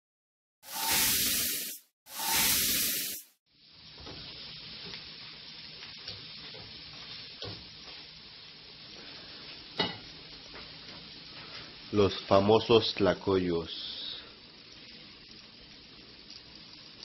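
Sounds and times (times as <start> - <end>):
food sizzling on a griddle: 0.6 - 17.0.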